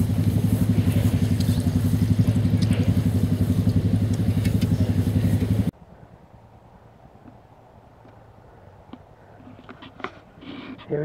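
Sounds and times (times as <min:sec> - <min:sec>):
engine idling: 0:00.0 - 0:06.0.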